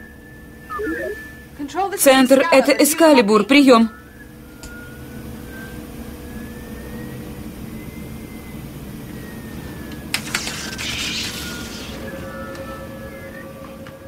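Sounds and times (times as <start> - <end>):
faint electronic tone: 0.6 - 1.6
crackling hiss: 10.1 - 12.7.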